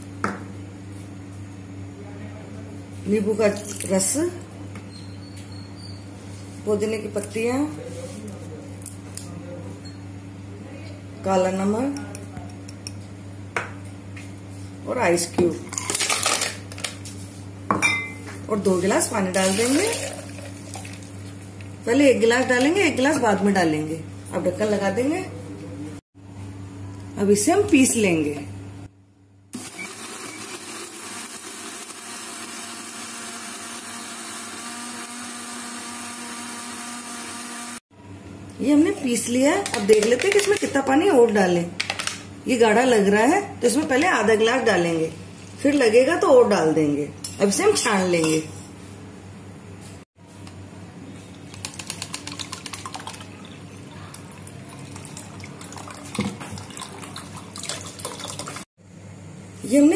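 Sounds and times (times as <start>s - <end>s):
juice pouring and splashing: 19.4s - 21.3s, 51.4s - 58.7s
mixer grinder motor whine: 29.6s - 37.8s
liquid churning in jar: 51.4s - 58.6s.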